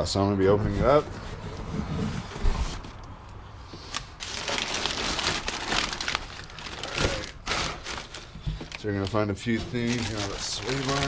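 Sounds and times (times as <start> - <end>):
packing paper crinkling: 3.8 - 11.0.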